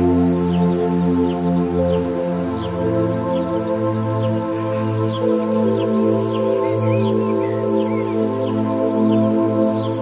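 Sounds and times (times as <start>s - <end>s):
ambient synthesizer chords: 0.0s - 10.0s
faint high bird chirps: 4.6s - 8.6s.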